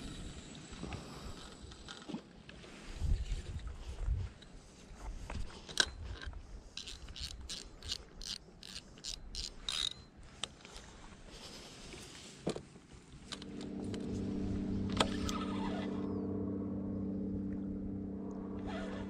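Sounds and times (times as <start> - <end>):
fishing reel ticking: 5.8 - 10.1.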